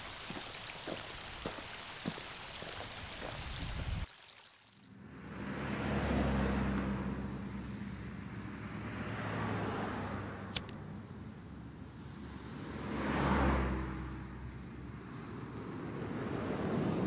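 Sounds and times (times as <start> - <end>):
car passing: 4.9 - 10.5, 11.7 - 17.0
street traffic hum: 4.9 - 17.0
sharp click: 10.5 - 10.8.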